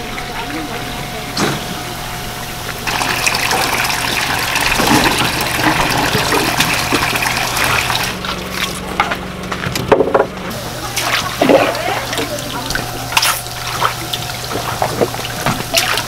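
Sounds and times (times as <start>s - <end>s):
steady low hum: 0.0s - 16.0s
water splashing from a hose: 2.8s - 9.0s, 10.5s - 16.0s.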